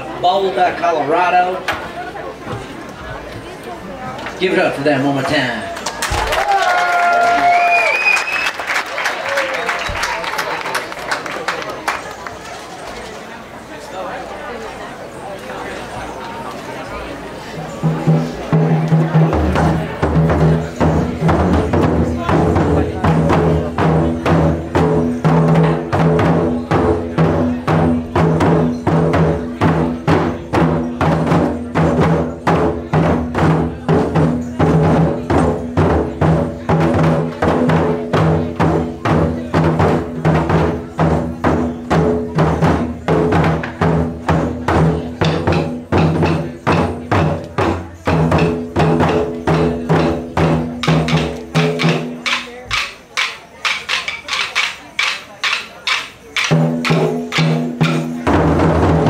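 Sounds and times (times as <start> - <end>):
taiko drums beating: 17.8 - 59.0.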